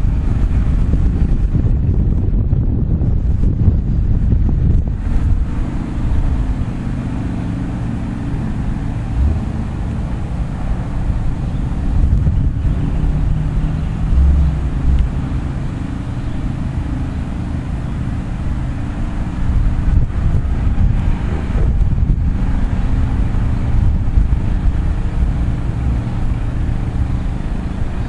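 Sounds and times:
freight train rumbling past: 0.0s - 28.0s
road vehicles driving by: 0.0s - 28.0s.

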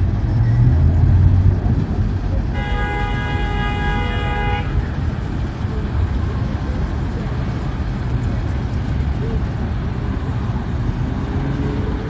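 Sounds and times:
traffic rumble: 0.0s - 12.0s
vehicle horn blast: 2.5s - 4.8s.

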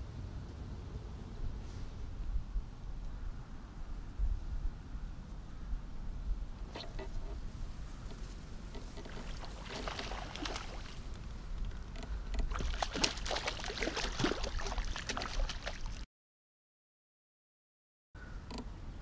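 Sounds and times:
fish splashing in water: 9.0s - 11.1s, 12.5s - 16.0s.

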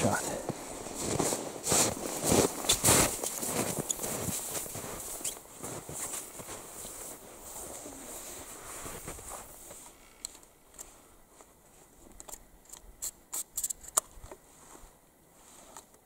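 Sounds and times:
rustling: 0.5s - 12.3s.

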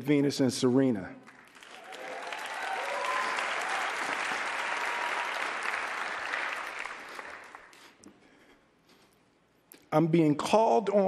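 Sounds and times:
audience applauding: 1.2s - 8.0s.

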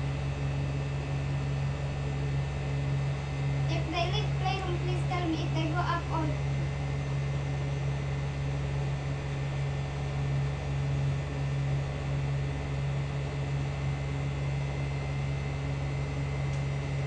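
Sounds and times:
motor humming: 1.9s - 7.3s.

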